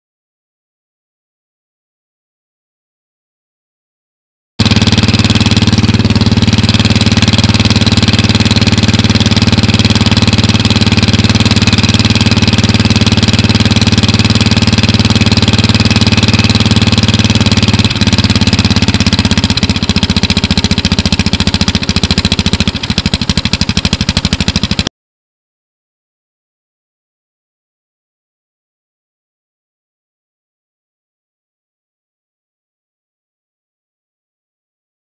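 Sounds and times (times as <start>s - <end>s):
small mower engine idling: 4.6s - 24.9s.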